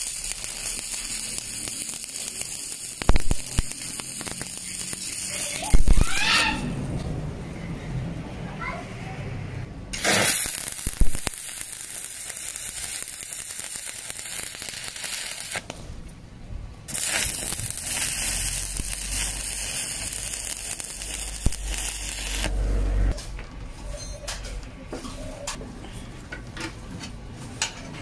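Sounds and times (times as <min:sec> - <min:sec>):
welding arc crackling: 0:00.0 - 0:06.7, 0:09.9 - 0:15.8, 0:16.9 - 0:23.2.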